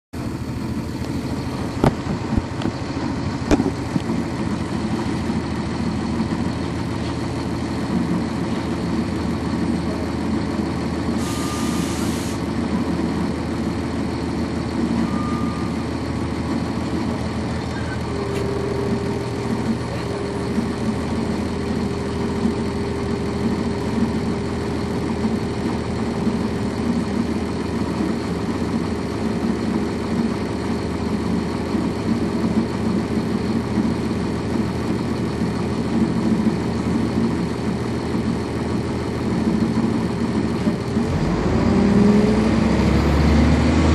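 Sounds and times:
bus diesel engine running: 0:00.1 - 0:43.9
short hiss: 0:11.2 - 0:12.4
steady whine: 0:14.8 - 0:27.4.

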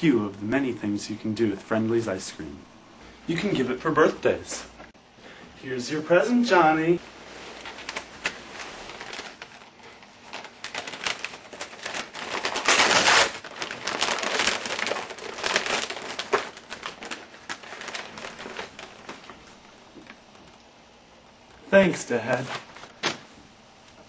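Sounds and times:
wrapping paper tearing: 0:07.2 - 0:20.5.

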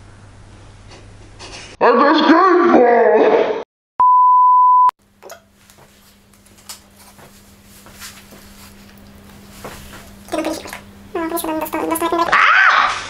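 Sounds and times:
steady bleep tone: 0:04.0 - 0:04.9.

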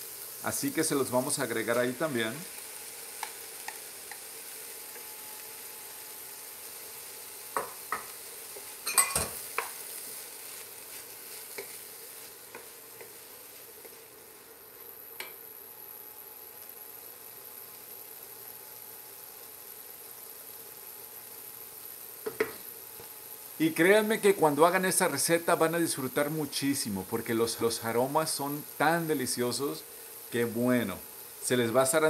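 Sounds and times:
vegetables sizzling in oil: 0:00.0 - 0:32.0
wooden spoon knocking on pan: 0:07.6 - 0:08.2, 0:22.2 - 0:22.6.

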